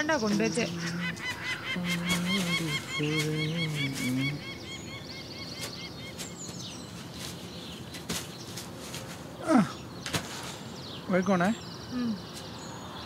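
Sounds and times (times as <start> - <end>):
bird trill: 0.0 - 9.0
small bird chirping: 0.0 - 13.0.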